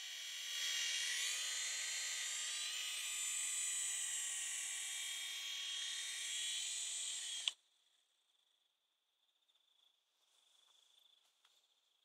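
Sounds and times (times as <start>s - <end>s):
rc helicopter whine: 0.0s - 7.5s.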